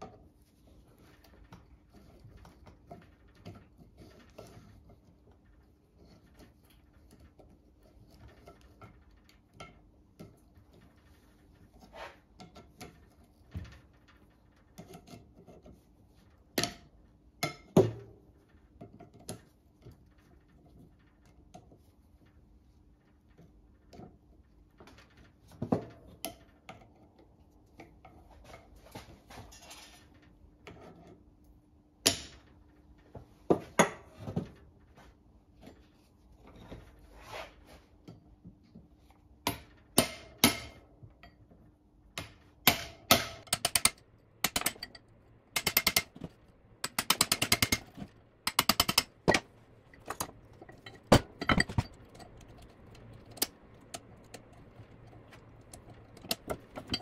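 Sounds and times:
hammer striking metal: 45.6 - 52.0.

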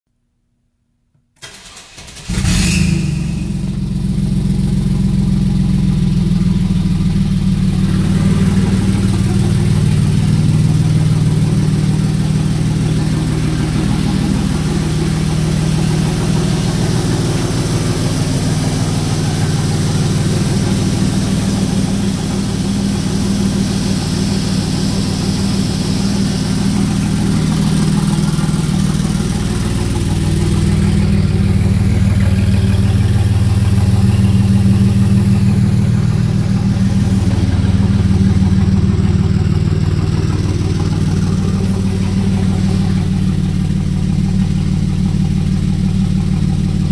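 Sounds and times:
car engine starting and idling: 1.4 - 46.9.

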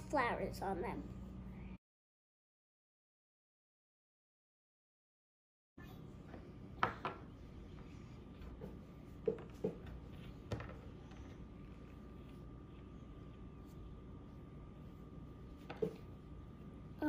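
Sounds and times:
thin steady whine: 5.8 - 17.0.

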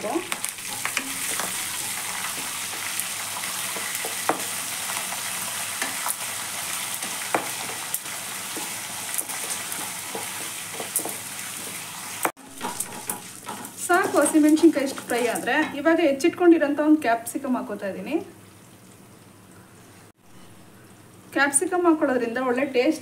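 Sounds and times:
chillies sizzling in hot oil: 0.0 - 23.0
metal spatula scraping pan: 12.4 - 15.8.

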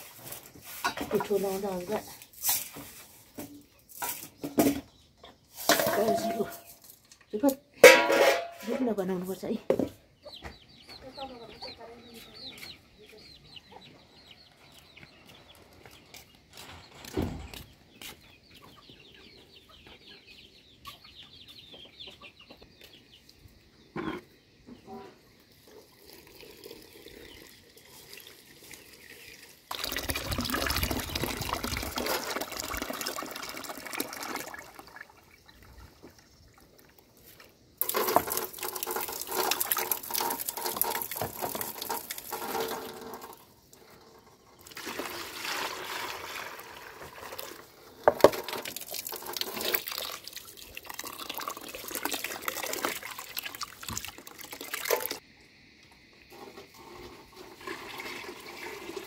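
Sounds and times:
water sloshing grain washed by hand: 0.0 - 3.4, 5.6 - 6.8, 25.5 - 43.9, 44.6 - 55.2, 56.3 - 59.0
tap water running into metal pot: 29.6 - 35.0, 37.8 - 43.4, 44.6 - 55.2, 57.3 - 59.0.

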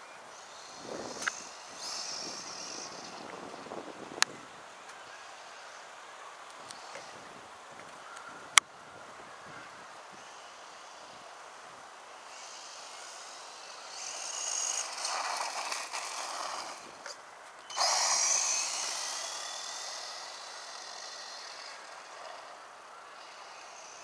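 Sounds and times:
electric motor whining: 0.3 - 4.3, 12.2 - 24.0.

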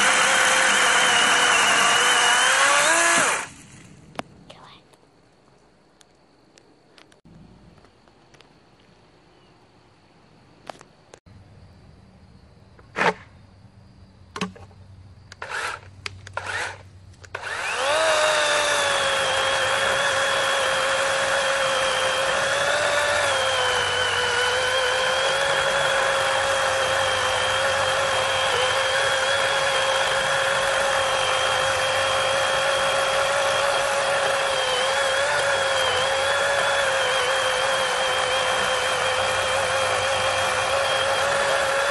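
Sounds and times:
electric chainsaw cutting log: 0.0 - 3.8, 15.4 - 41.9.

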